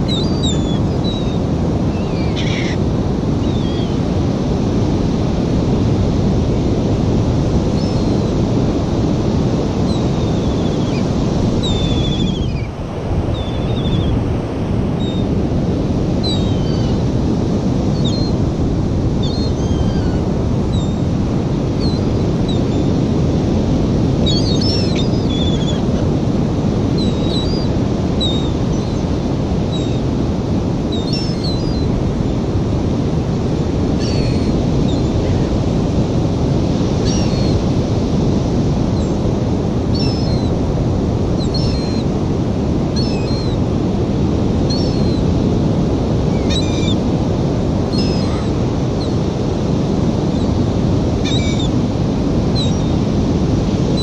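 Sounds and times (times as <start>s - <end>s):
ocean surf: 0.0s - 54.0s
wind on microphone: 0.0s - 54.0s
seagull calls: 0.1s - 2.8s, 3.4s - 4.0s, 19.2s - 21.0s, 24.2s - 26.0s, 31.0s - 31.9s, 34.0s - 35.5s, 39.9s - 40.5s, 41.4s - 42.0s, 43.0s - 43.6s, 44.7s - 45.2s, 46.3s - 47.0s, 47.9s - 49.2s, 51.2s - 51.7s, 52.6s - 53.0s.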